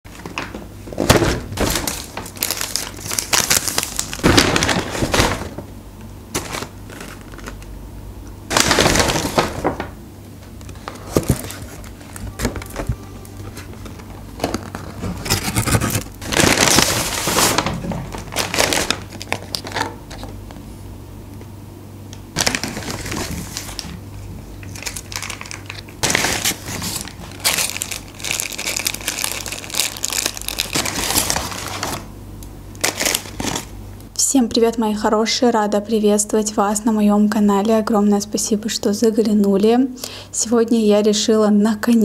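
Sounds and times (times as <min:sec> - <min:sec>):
paper bags rustling and crinkling: 0:00.1 - 0:05.7, 0:06.3 - 0:07.6, 0:08.5 - 0:20.4, 0:22.4 - 0:32.1, 0:32.8 - 0:33.8
low steady hum: 0:00.1 - 0:42.0.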